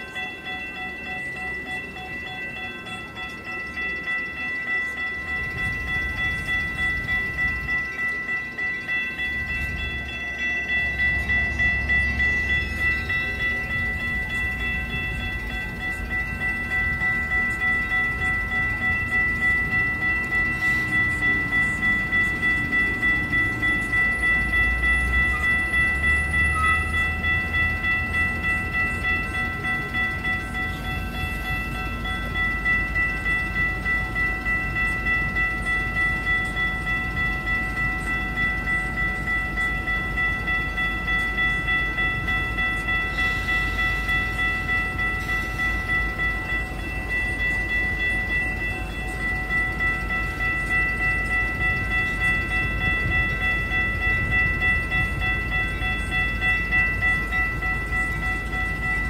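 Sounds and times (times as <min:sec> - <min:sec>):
railroad crossing bells ringing: 0:00.0 - 0:59.0.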